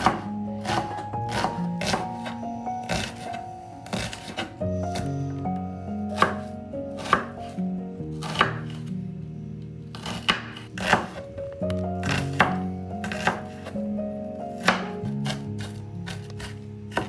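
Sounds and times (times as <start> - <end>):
knife chopping on wooden board: 0.0 - 5.1, 6.1 - 7.3, 8.2 - 8.9, 9.9 - 11.2, 12.0 - 13.7, 14.6 - 17.0
background music: 0.0 - 17.0.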